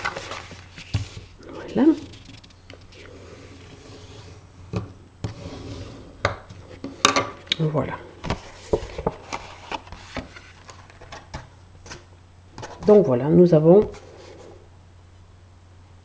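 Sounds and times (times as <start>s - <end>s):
card stock being folded: 0.0s - 3.7s.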